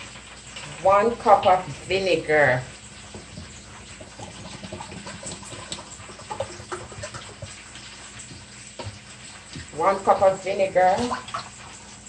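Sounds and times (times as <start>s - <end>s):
liquid gurgling and splashing into mug: 2.6s - 9.8s.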